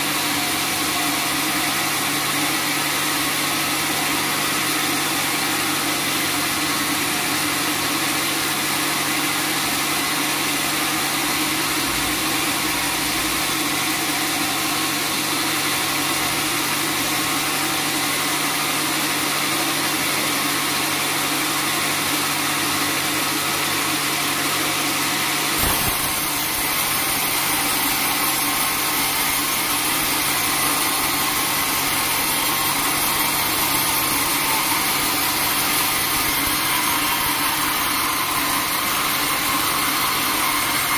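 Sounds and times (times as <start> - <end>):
band saw cutting log: 25.0 - 40.9.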